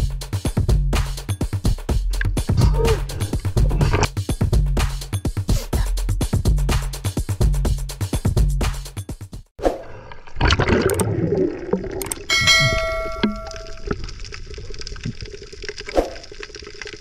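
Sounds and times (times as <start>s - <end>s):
underwater water noise: 9.6s - 17.0s
clicks: 12.0s - 13.9s
bell ding: 12.3s - 13.9s.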